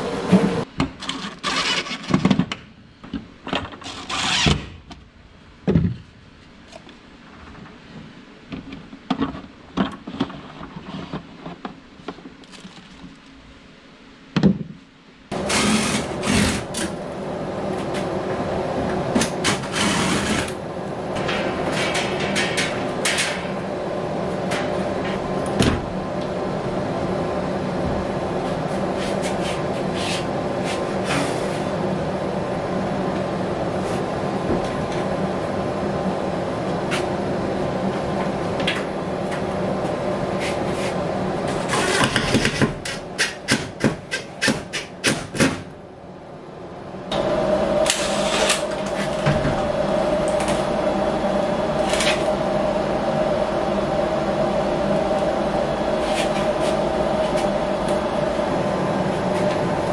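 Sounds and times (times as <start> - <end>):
machine hum: 0.0 - 59.9.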